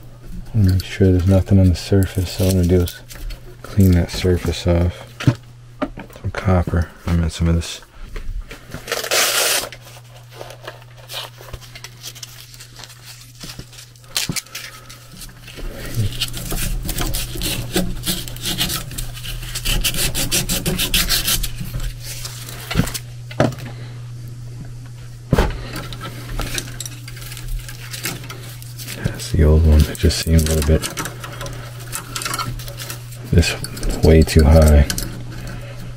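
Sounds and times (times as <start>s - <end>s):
steady low hum: 0.0s - 35.9s
hand scrubbing copper pipe: 14.5s - 23.0s, 25.8s - 35.9s.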